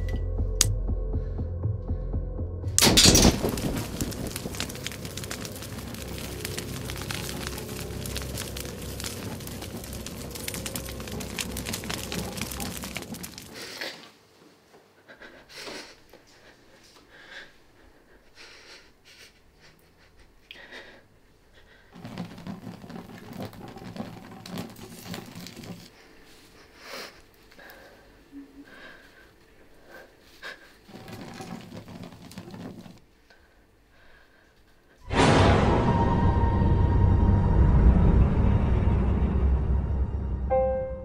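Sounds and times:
loud dense crackling: 2.8 - 13.9.

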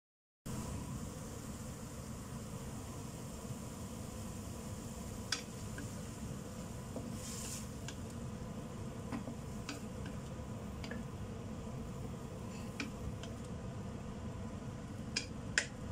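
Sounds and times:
food sizzling: 0.5 - 15.9
steady low hum: 0.5 - 15.9
spatula tapping a wok: 5.3 - 5.9, 9.1 - 10.2.

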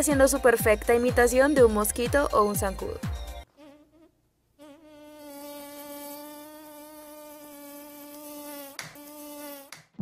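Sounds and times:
man imitating mosquito buzz: 3.5 - 10.0.

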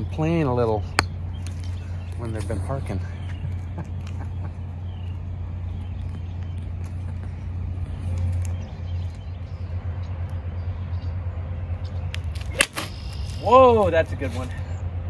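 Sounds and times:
distant motor vehicles rumbling: 0.0 - 15.0.

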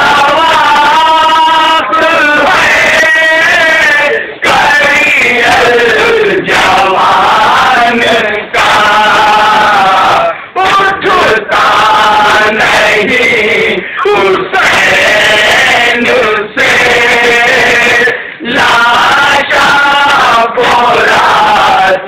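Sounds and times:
men chanting a lament: 0.0 - 22.0.

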